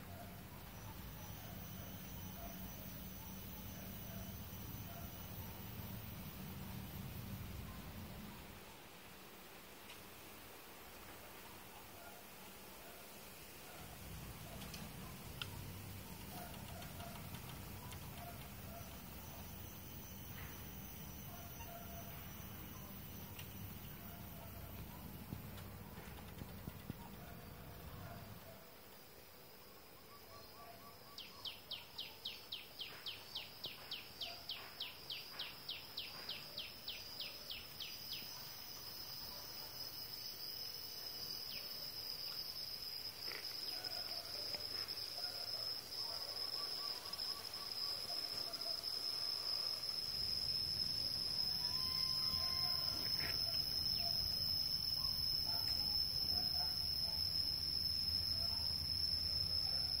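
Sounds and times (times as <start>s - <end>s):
insects shrilling: 39.8s - 60.0s.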